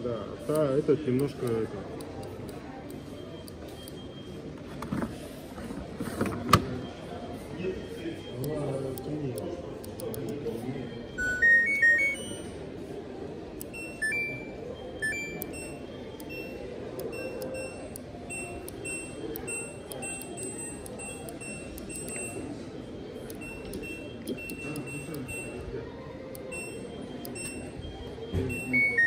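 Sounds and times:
steady background din: 0.0 - 29.0
appliance electronic beeps: 10.8 - 12.7, 13.6 - 25.7, 26.4 - 29.0.

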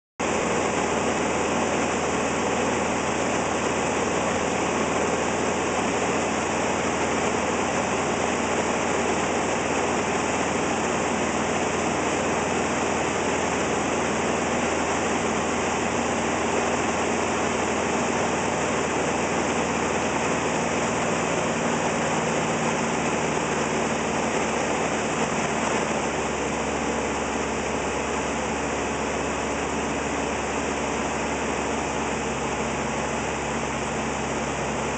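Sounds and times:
light aircraft engine drone: 0.2 - 34.9.

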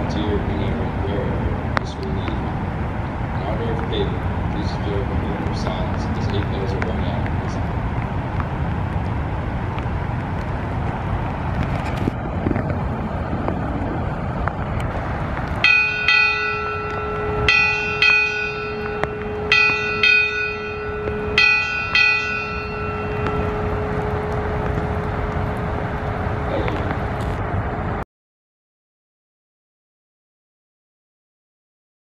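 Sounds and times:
low outdoor rumble: 0.0 - 28.0
ship's bell ringing: 15.6 - 26.8.

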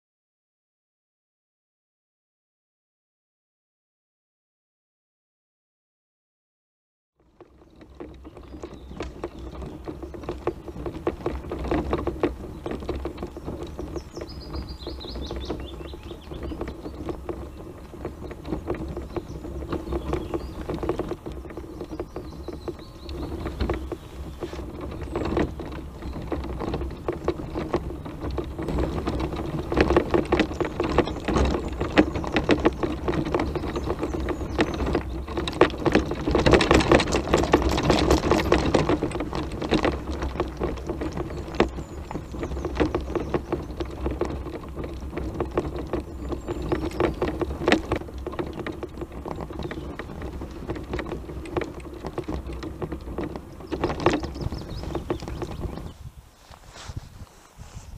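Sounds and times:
scooter rattling over stones: 7.2 - 57.9
tyres crunching on gravel: 7.2 - 57.9.

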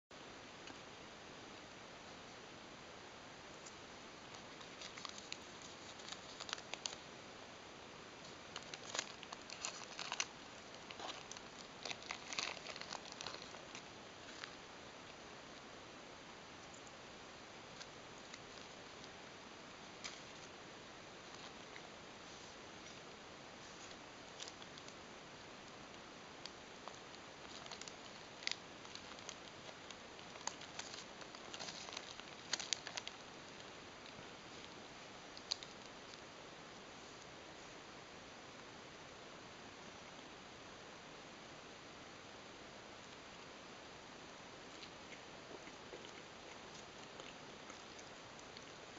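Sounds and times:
steady hiss: 0.1 - 48.9
paper wrapper crinkling and tearing: 4.6 - 7.0, 8.5 - 14.6, 26.8 - 34.7, 35.3 - 36.2.

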